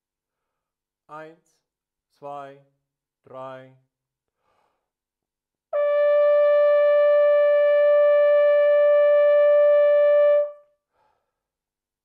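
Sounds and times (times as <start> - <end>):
hunting horn long steady note: 5.8 - 10.6.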